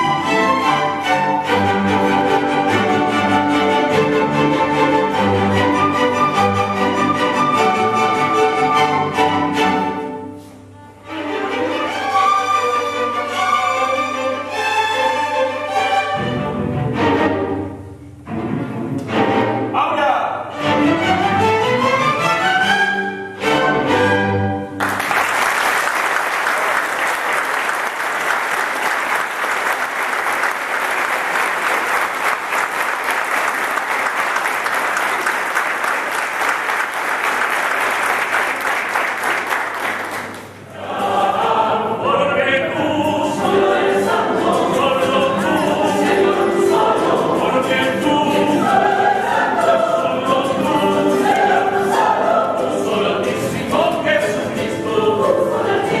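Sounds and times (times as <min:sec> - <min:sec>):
mixed choir singing: 0:00.0 - 0:10.2, 0:40.6 - 0:56.0
audience applauding: 0:24.8 - 0:40.6.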